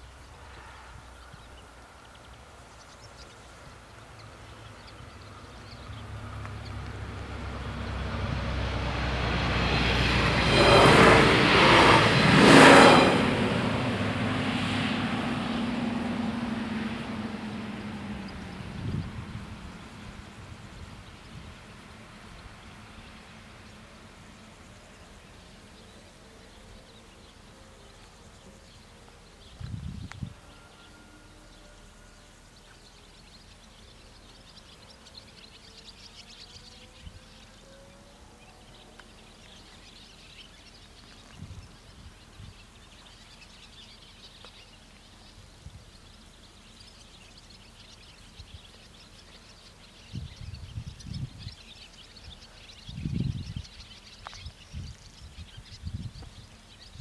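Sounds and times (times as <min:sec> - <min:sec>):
birds chirping: 0:00.0 - 0:57.0
low rumbles: 0:03.7 - 0:25.7.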